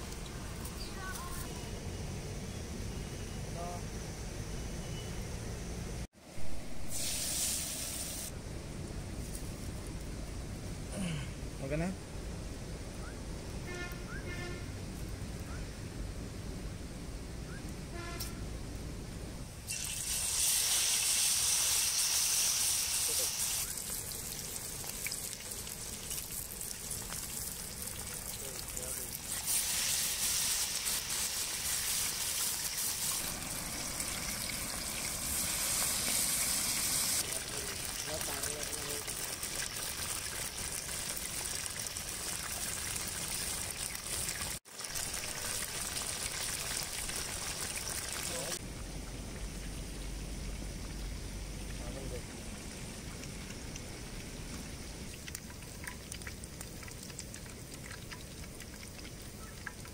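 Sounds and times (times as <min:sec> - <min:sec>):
fish roe sizzling in oil: 0:06.9 - 0:08.3, 0:19.6 - 0:48.6.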